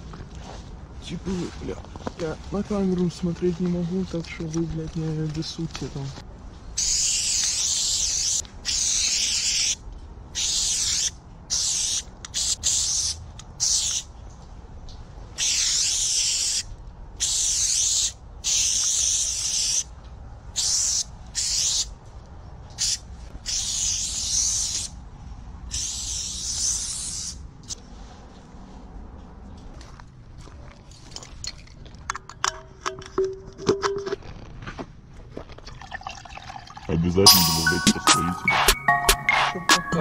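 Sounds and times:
spray-paint can hissing: 0:10.4 - 0:14.0, 0:25.7 - 0:27.4.

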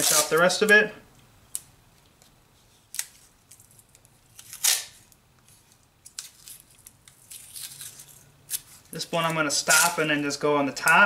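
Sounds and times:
masking tape ripping off roll: 0:00.0 - 0:00.8, 0:02.8 - 0:05.2, 0:05.8 - 0:10.1
tape crackling as pressed down: 0:00.0 - 0:00.8, 0:01.5 - 0:10.1.

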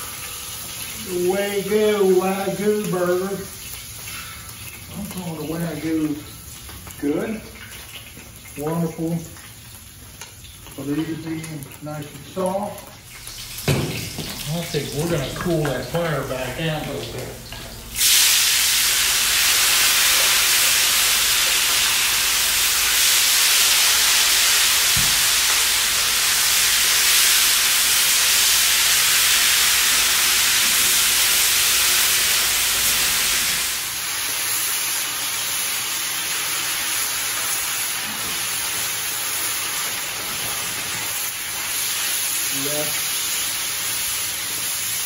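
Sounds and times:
vegetables sizzling in hot oil: 0:00.0 - 0:01.3, 0:16.4 - 0:45.0.

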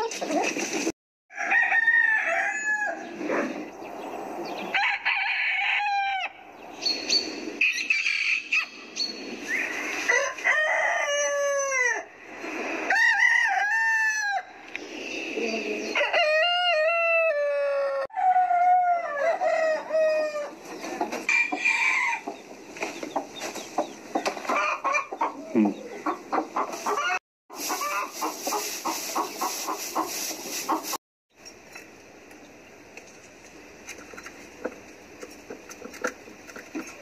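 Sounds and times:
roosters crowing: 0:01.3 - 0:14.6, 0:15.6 - 0:29.4
hens clucking: 0:20.5 - 0:31.0.

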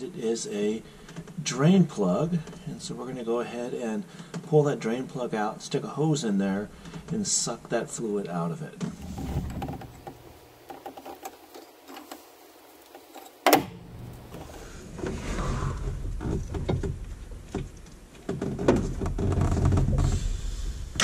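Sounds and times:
wrench clinking and scraping metal: 0:10.7 - 0:13.5.

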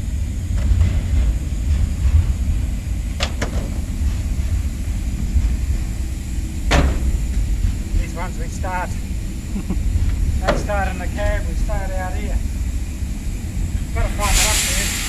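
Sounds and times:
low rumble: 0:00.0 - 0:15.0
metallic door clack: 0:06.7 - 0:07.2.

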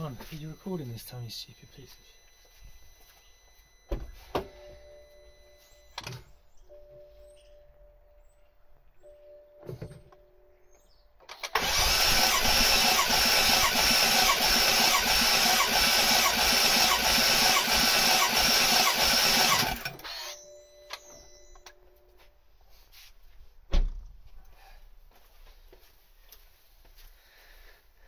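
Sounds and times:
engine cranking by starter motor: 0:11.3 - 0:20.4.

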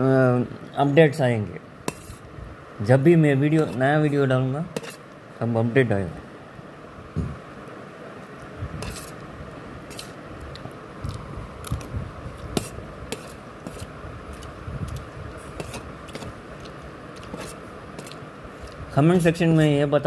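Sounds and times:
metal spoon scraping a plate: 0:04.8 - 0:05.0, 0:08.8 - 0:09.2.

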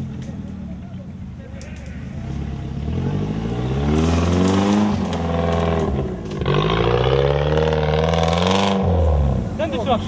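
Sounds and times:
engine revving: 0:02.2 - 0:09.6.

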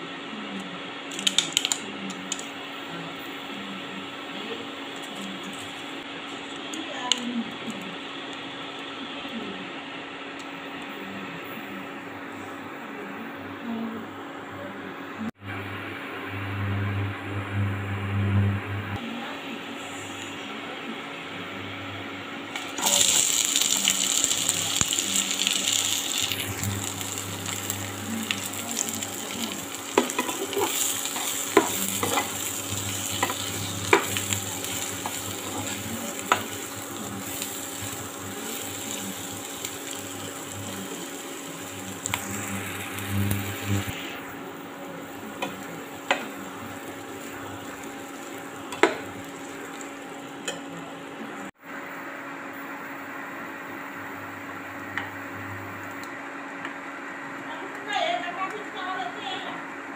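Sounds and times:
onions sizzling in hot oil: 0:22.6 - 0:44.1, 0:45.0 - 0:50.6.

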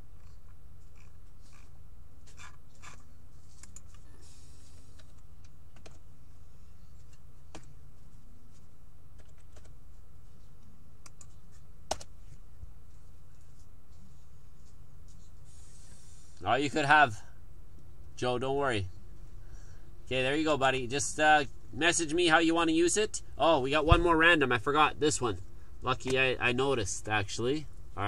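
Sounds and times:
steady low hum: 0:00.0 - 0:28.0
keyboard typing: 0:09.2 - 0:09.7.

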